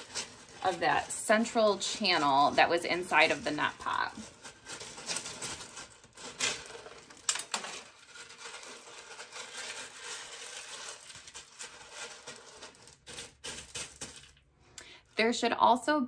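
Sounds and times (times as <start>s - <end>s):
clay pebbles rustling and clicking: 0.0s - 14.5s.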